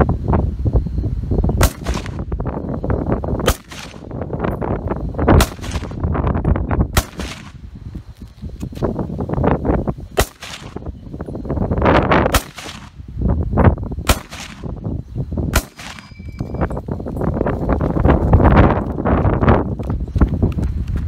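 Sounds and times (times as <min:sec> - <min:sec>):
rifle shots: 0:01.6 - 0:02.3, 0:03.4 - 0:04.1, 0:05.4 - 0:06.0, 0:06.9 - 0:07.6, 0:10.2 - 0:10.9, 0:12.3 - 0:13.0, 0:14.1 - 0:14.8, 0:15.5 - 0:16.2
high metallic ping: 0:15.6 - 0:16.9.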